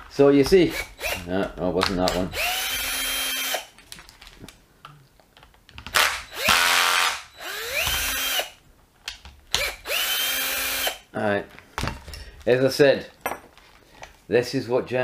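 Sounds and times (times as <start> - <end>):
cordless drill motor whine: 0.7 - 1.2, 2.1 - 3.7, 6.0 - 8.6, 9.6 - 11.0.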